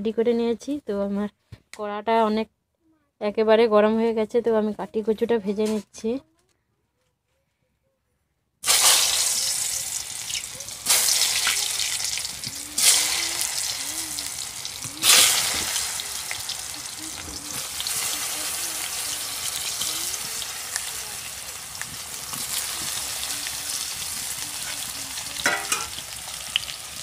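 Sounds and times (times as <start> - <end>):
slices frying in hot oil: 8.6 - 27.0.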